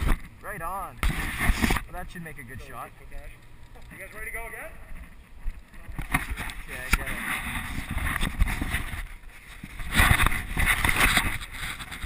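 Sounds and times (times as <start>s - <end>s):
action camera rustling and bumping: 0.0s - 0.4s, 1.0s - 1.9s, 4.8s - 12.0s.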